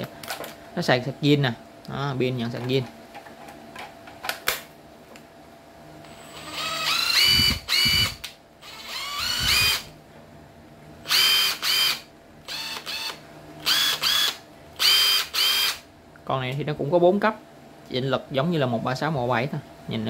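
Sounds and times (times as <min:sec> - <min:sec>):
impact driver motor whining: 0:06.1 - 0:09.9, 0:11.1 - 0:15.8.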